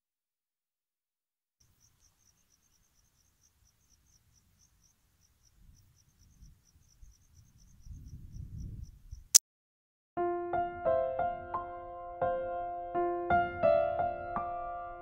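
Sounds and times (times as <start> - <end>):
cricket chirping: 1.6 - 9.4.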